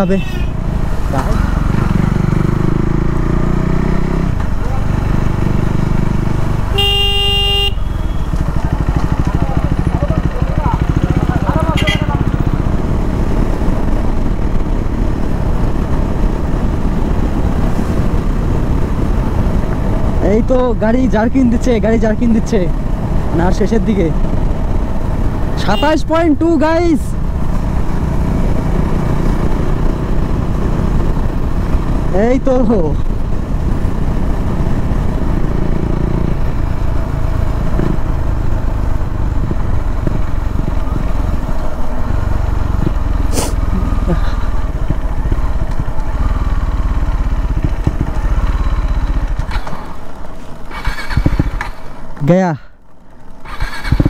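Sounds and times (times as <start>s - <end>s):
motorcycle engine running: 0.0s - 54.0s
wind rumble: 12.2s - 20.2s, 33.1s - 52.1s.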